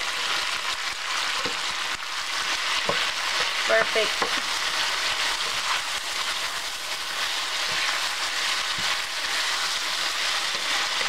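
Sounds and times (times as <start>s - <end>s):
food sizzling in a skillet: 0.0s - 11.0s
wooden spoon knocking on pan: 3.8s - 4.5s.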